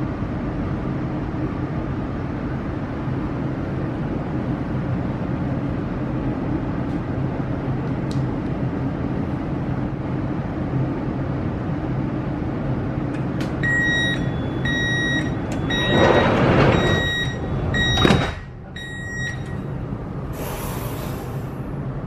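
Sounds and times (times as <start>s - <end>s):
train humming: 0.0s - 22.0s
sliding doors shutting: 13.1s - 21.7s
door-closing warning beeps: 13.5s - 19.8s.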